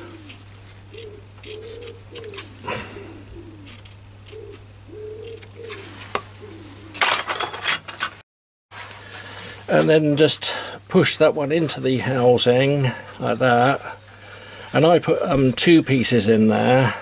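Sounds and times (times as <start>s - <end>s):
dove cooing: 0.0s - 7.1s
scissors snipping foam: 0.2s - 2.5s.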